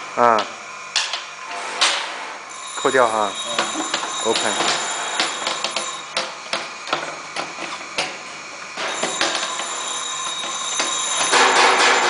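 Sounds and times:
high ringing tone: 0:02.5 - 0:06.2, 0:08.8 - 0:12.0.

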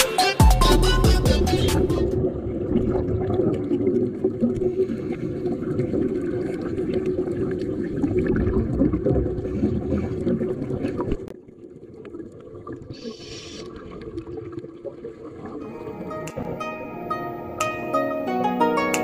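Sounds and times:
underwater rumble with crackling: 0:02.0 - 0:15.6
hissing bubbles: 0:11.9 - 0:17.2.

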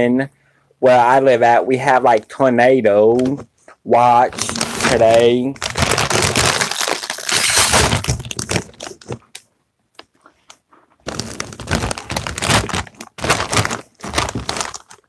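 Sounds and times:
plastic chip bag crinkling: 0:04.3 - 0:09.4, 0:11.0 - 0:15.0.

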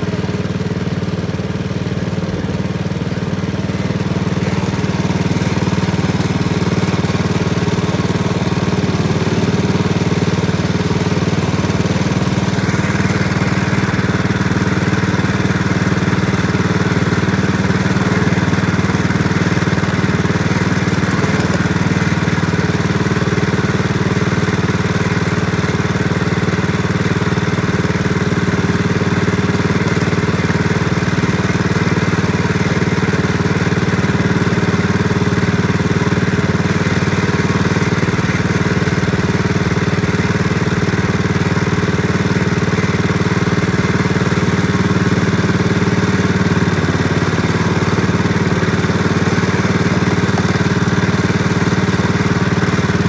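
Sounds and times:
small engine running steadily: 0:00.0 - 0:53.0.

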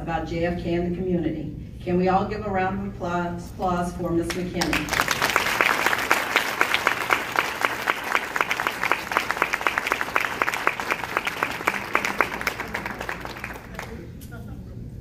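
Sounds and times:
audience applauding: 0:04.6 - 0:14.1.

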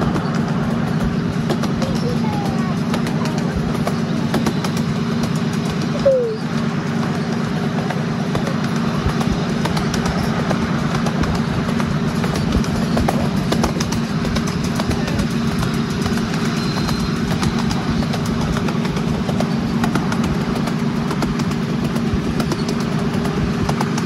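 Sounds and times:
miniature train locomotive drone: 0:00.0 - 0:24.0
wheels clicking on rails: 0:00.0 - 0:24.0
falling squeak: 0:16.3 - 0:18.1.

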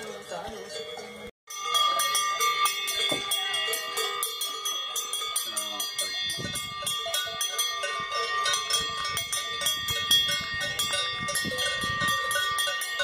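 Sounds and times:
cowbells clanging: 0:00.0 - 0:13.0.

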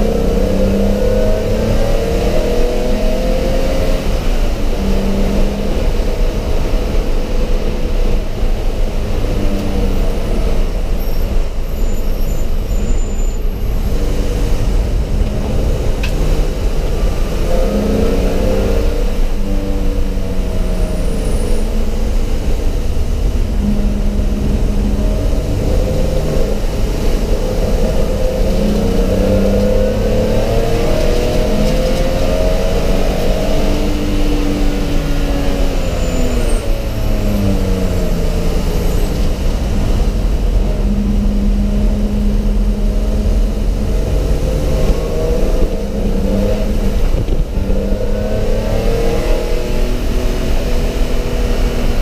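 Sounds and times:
road and wind rumble: 0:00.0 - 0:52.0
race car engine accelerating: 0:12.2 - 0:52.0.

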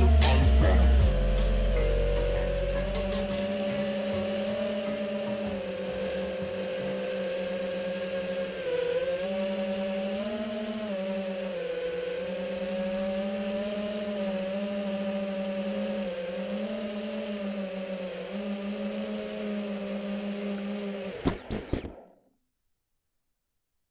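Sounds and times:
quadcopter motors humming: 0:00.0 - 0:22.2.

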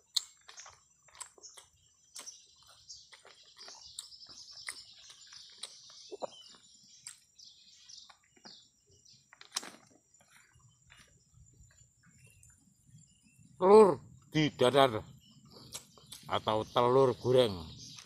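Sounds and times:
birds chirping: 0:00.0 - 0:18.0
lips smacking while chewing: 0:00.1 - 0:07.3.

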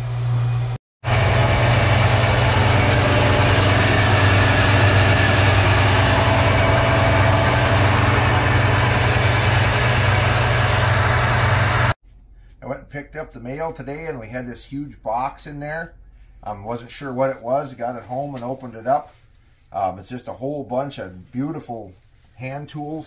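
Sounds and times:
pump humming: 0:00.0 - 0:12.0.

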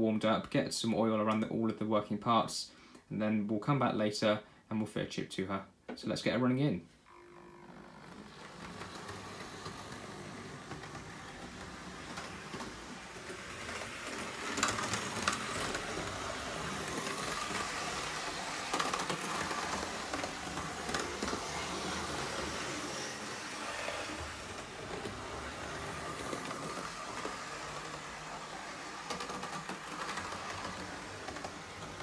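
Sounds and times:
model train motor whirring: 0:07.1 - 0:32.0
wheels running over track: 0:07.1 - 0:32.0.

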